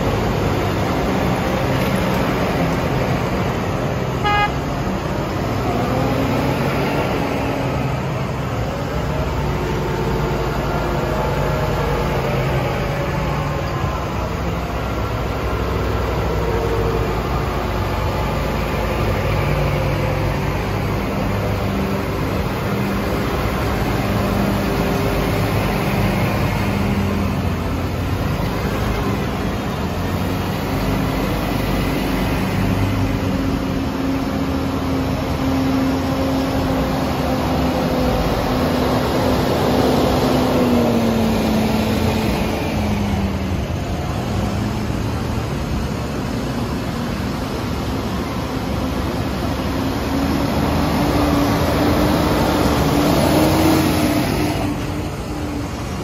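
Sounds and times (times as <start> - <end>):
tractor engines humming: 0.0 - 56.0
tyres on wet road: 0.0 - 56.0
short horn toot: 4.2 - 4.6.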